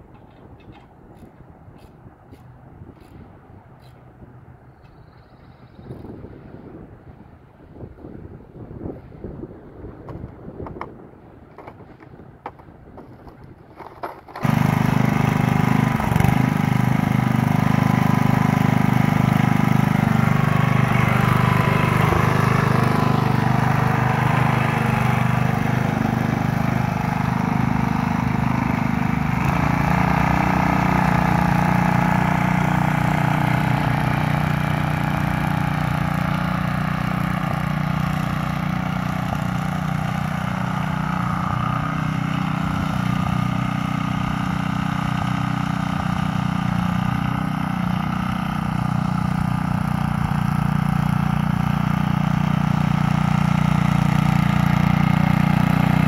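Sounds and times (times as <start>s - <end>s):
small gas engine running: 11.6s - 56.0s.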